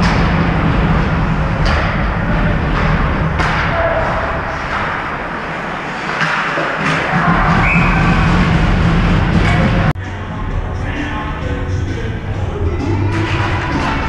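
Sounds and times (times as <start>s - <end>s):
arena noise with low hum: 0.0s - 14.0s
hockey sticks and puck knocks: 1.6s - 7.9s.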